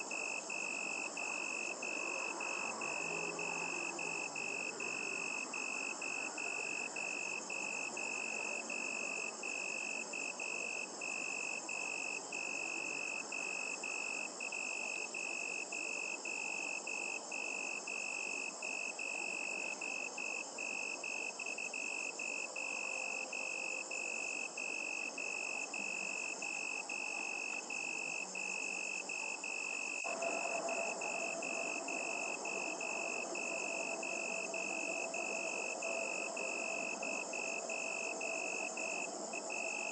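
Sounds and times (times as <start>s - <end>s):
crickets chirring: 0.0s - 39.9s
faint low hum: 25.5s - 39.9s.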